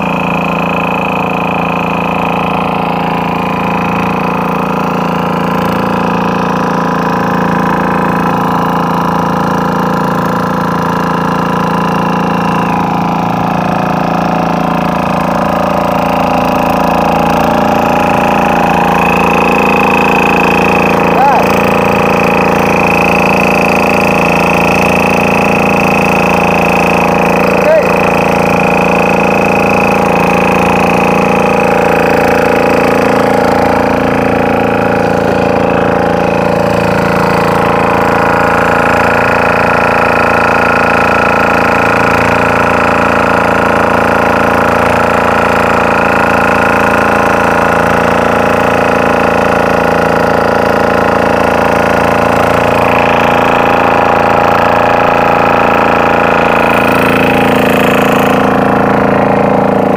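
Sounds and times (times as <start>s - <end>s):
boat engine running: 0.0s - 59.9s.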